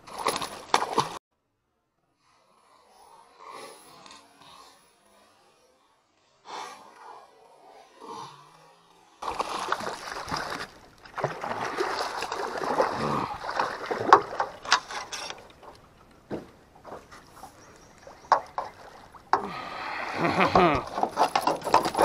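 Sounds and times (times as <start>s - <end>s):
fish splashing at water surface: 9.2s - 14.8s.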